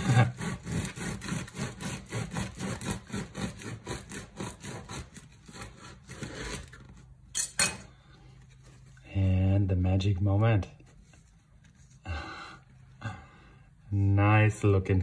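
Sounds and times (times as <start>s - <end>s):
knife sawing through bread crust: 0.0s - 7.1s.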